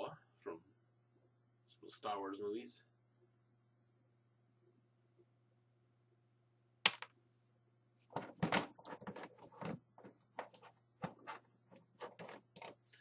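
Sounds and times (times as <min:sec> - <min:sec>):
plastic figures clattering: 0:08.1 - 0:12.8.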